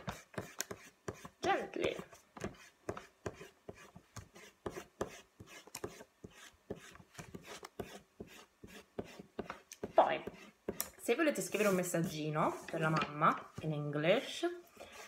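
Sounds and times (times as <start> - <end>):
eraser rubbing on card: 0.0 - 10.8, 14.8 - 15.0.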